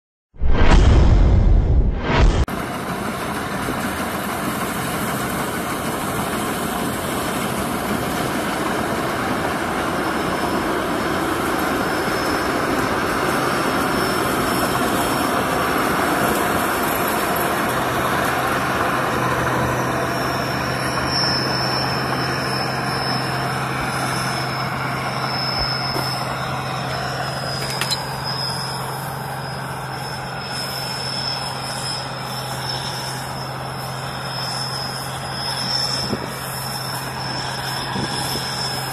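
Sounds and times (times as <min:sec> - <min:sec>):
combine harvester engine drone: 0:02.0 - 0:38.9
thin high whine: 0:11.5 - 0:38.9.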